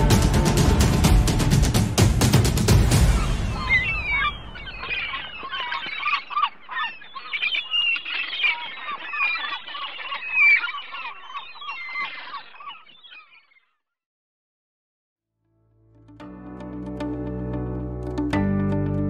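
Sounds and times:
flock of birds chirping and squawking: 3.0 - 13.6.

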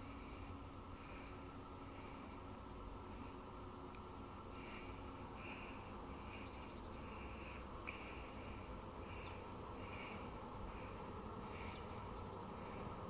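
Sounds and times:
low background noise: 0.0 - 13.0
insects chirping: 4.2 - 13.0.

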